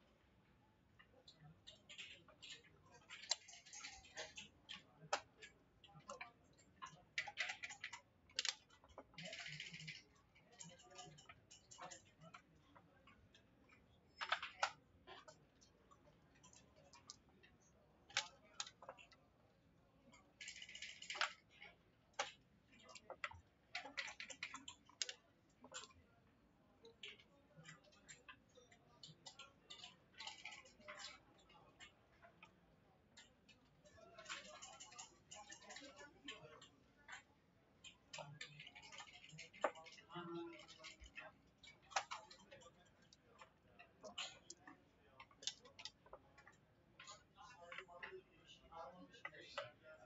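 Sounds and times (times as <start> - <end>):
checkers and dice clicking on wood: 1.6 - 12.5, 13.7 - 17.3, 18.1 - 19.2, 20.1 - 26.0, 27.1 - 32.6, 34.1 - 48.2
game pieces clacking on board: 6.0 - 12.2, 20.4 - 21.6, 22.2 - 26.0, 38.1 - 43.5.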